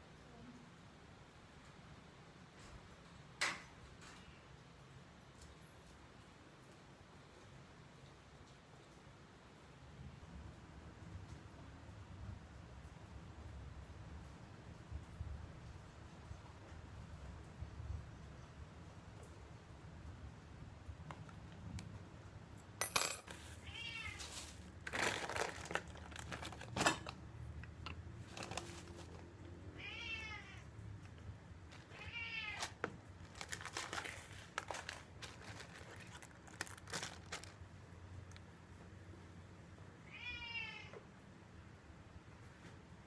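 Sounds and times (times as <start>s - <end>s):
grocery bags rustling: 23.3s - 27.3s, 28.2s - 29.4s, 31.7s - 37.8s
cat meowing: 23.6s - 24.3s, 29.7s - 30.7s, 31.8s - 32.8s, 40.0s - 41.0s.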